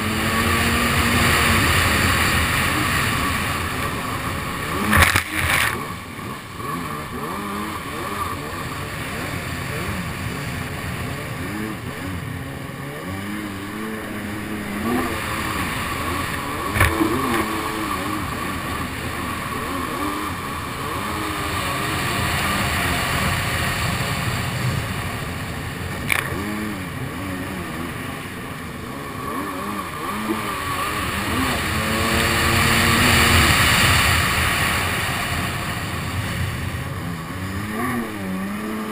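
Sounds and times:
jet ski engine revving: 0.0 - 38.9
water spray rushing: 29.9 - 37.8.

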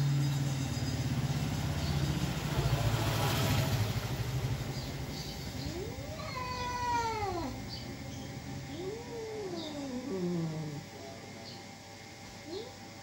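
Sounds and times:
cat growling: 5.5 - 11.1
cat yowling: 5.6 - 7.9, 8.6 - 11.0.

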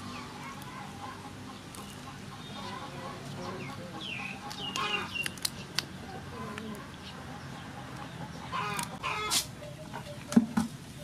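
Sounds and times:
chickens clucking: 0.0 - 11.0
shrimp shell cracking: 4.5 - 5.9.

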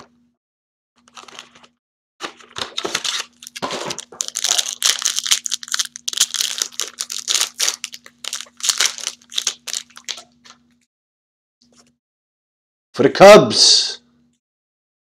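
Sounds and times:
foil wrapper crinkling and tearing: 2.4 - 10.6.

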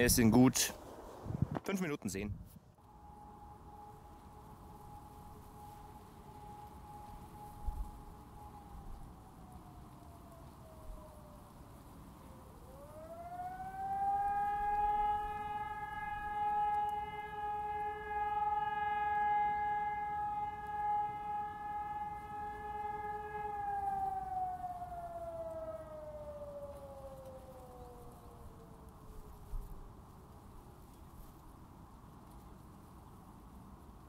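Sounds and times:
electronic siren wailing: 2.8 - 11.3, 12.5 - 29.6.

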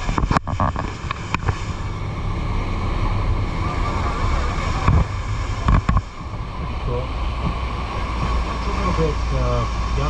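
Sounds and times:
boat engine rumble: 0.0 - 10.0
water rushing past hull: 0.0 - 10.0
wind noise on microphone: 0.0 - 10.0.

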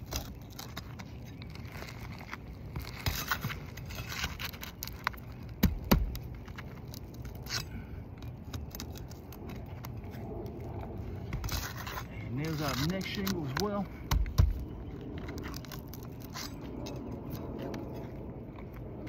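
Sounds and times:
pry bar scraping and clicking: 2.8 - 10.6, 11.3 - 18.0.

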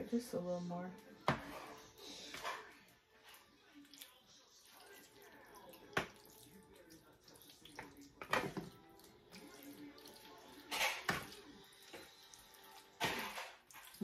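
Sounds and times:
spoon stirring wet macaroni: 0.9 - 14.0
spoon scraping foil pan: 1.4 - 3.3, 10.6 - 11.3.

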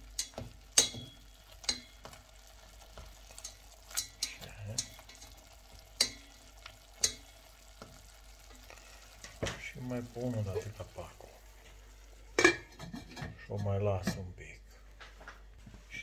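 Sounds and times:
meat sizzling: 0.0 - 12.7
tongs knocking against metal pot: 0.1 - 8.0, 12.4 - 14.2.

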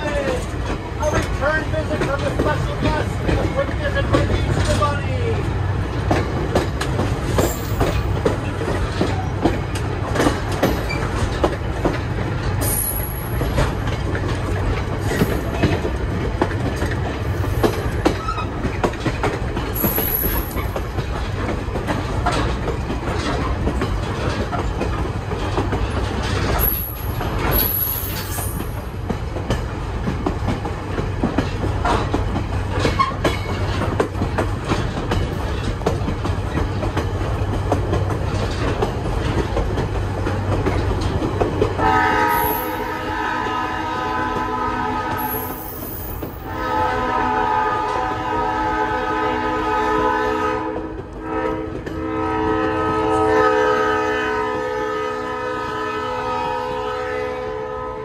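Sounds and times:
train wheel clacks: 0.0 - 43.6, 44.2 - 46.9, 50.6 - 52.3
train rumbling on track: 0.0 - 58.0.

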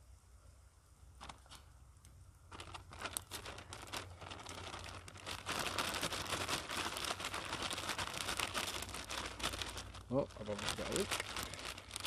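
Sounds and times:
paper bag crinkling and rustling: 2.5 - 12.0.

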